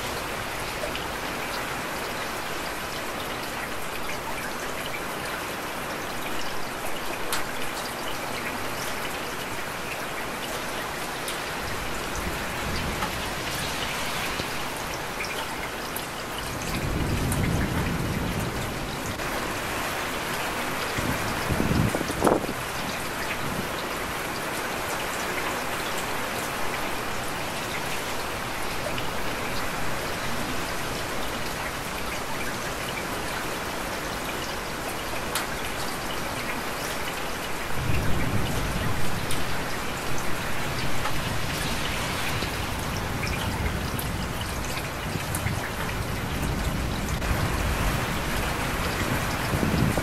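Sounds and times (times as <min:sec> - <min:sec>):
heavy rain hissing: 0:08.6 - 0:32.4, 0:34.6 - 0:50.0.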